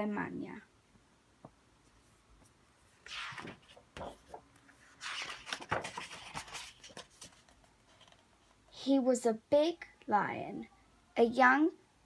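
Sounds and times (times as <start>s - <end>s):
book pages turning: 3.0s - 8.5s.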